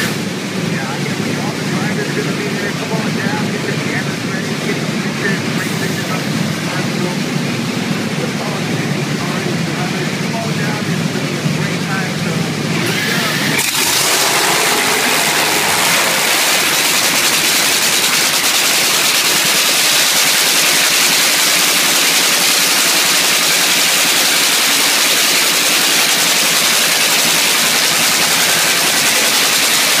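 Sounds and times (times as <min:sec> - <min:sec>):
loud engine crackling hiss: 0:11.9 - 0:30.0.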